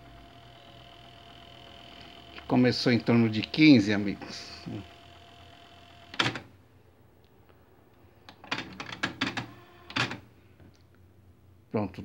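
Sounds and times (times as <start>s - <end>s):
cassette deck mechanism clicking: 6.1s - 6.5s.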